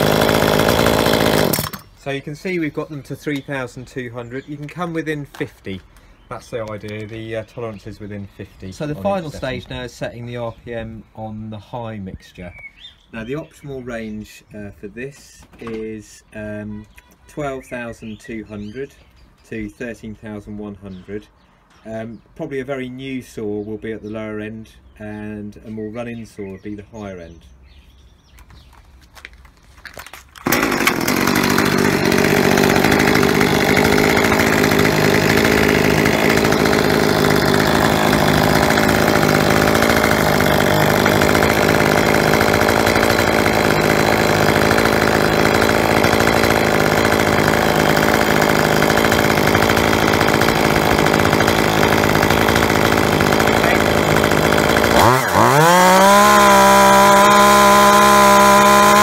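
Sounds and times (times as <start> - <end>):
chainsaw engine at full throttle: 0.0 - 1.9, 30.4 - 59.0.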